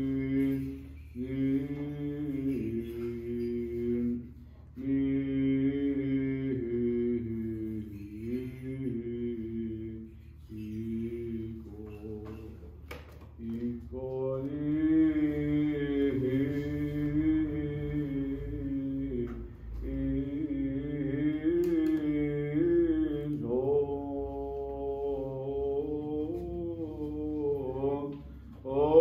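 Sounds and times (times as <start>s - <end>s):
man chanting: 0.0s - 12.8s, 13.4s - 29.0s.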